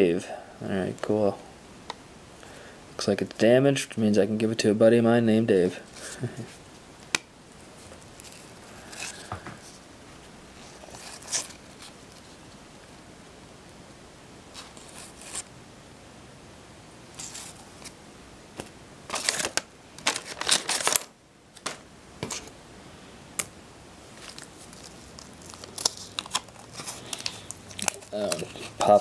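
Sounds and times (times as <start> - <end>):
waxed paper wrapper crinkling: 10.6 - 12.4, 19.1 - 21.1, 24.2 - 29.0.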